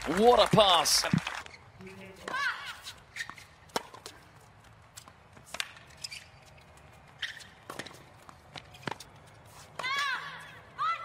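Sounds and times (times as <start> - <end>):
shoe squeaks on court: 2.7 - 4.0, 5.6 - 8.0
racket hitting tennis ball: 3.2 - 4.2, 5.0 - 6.0, 7.2 - 10.3.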